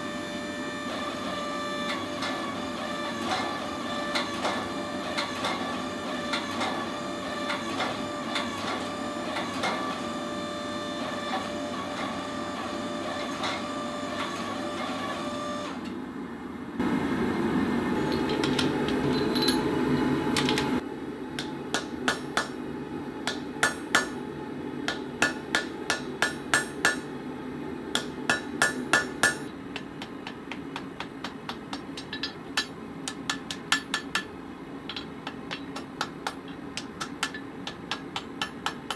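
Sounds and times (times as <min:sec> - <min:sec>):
power hammer pounding steel: 0:24.9 - 0:27.1, 0:27.9 - 0:34.3, 0:34.9 - 0:38.9.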